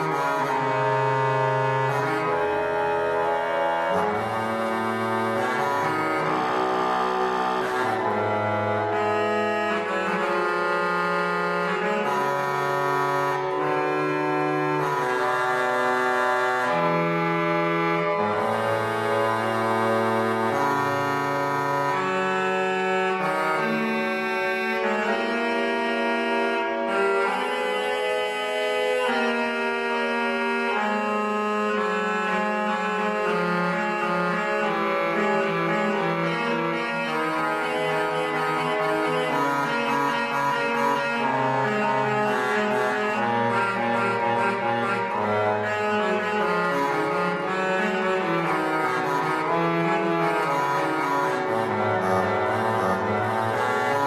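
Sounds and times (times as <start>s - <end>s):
pipe organ playing: 0.0s - 54.0s.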